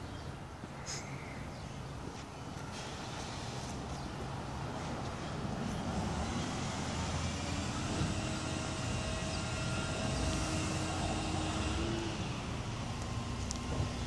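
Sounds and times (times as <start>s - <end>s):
distant engine drone: 4.5s - 14.0s.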